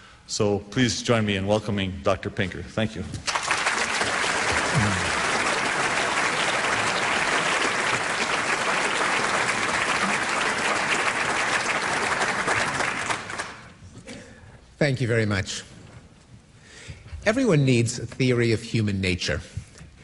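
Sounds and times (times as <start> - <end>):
audience applauding: 3.2 - 13.8.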